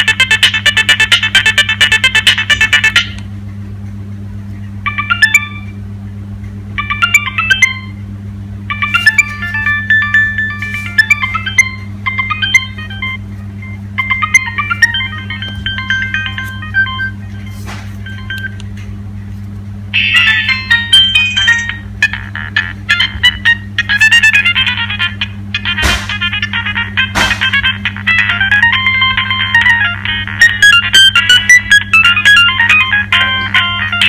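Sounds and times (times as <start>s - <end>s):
mobile phone ringtones: 4.8s - 5.7s, 6.8s - 7.9s, 8.7s - 18.6s, 20.0s - 25.7s, 27.6s - 34.0s.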